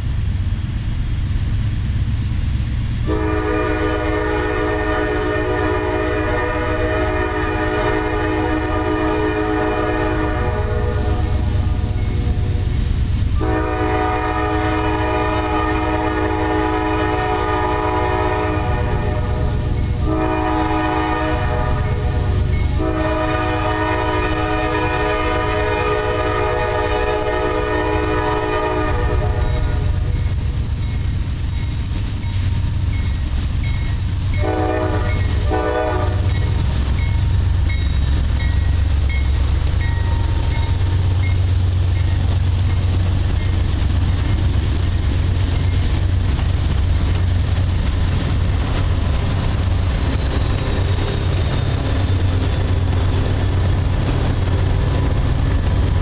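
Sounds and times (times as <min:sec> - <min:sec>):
low train rumble: 0:00.0 - 0:56.0
locomotive horn blasts: 0:03.0 - 0:12.6, 0:13.4 - 0:36.6.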